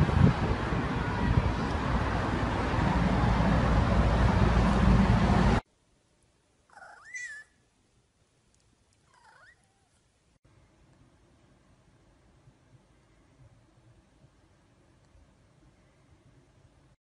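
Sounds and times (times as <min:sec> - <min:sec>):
loud rushing noise: 0:00.0 - 0:05.6
cat meowing: 0:09.1 - 0:10.0.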